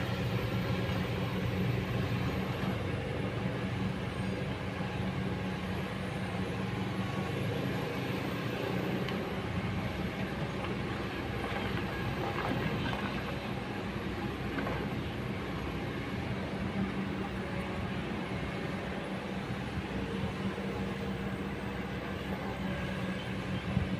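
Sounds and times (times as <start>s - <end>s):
excavator diesel engine drone: 0.0s - 23.9s.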